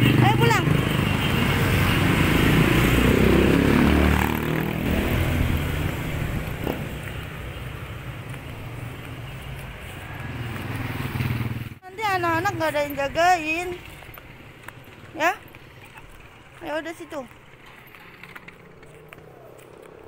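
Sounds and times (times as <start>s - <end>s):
vehicle engine passing by: 0.0s - 7.5s, 9.6s - 11.8s.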